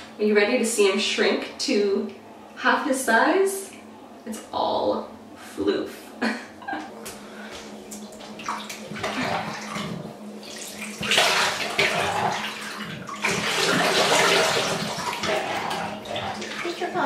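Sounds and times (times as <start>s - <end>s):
water splashing in a bathtub: 7.5s - 17.0s.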